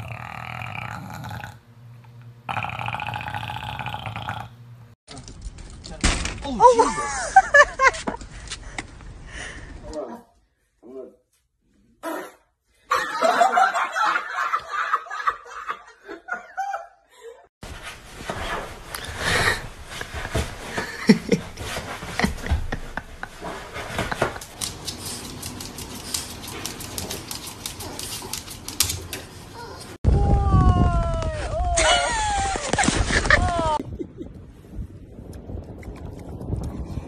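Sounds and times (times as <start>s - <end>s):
person laughing: 6.6s - 8.2s, 19.5s - 24.6s, 31.7s - 34.4s.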